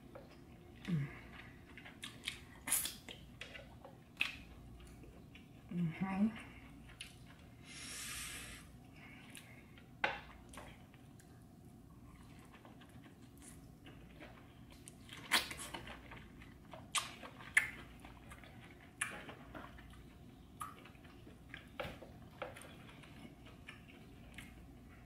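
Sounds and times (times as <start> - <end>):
wet chewing: 0.1 - 5.7, 6.5 - 7.6, 9.0 - 25.0
lip smacks: 1.9 - 5.0, 16.9 - 17.9.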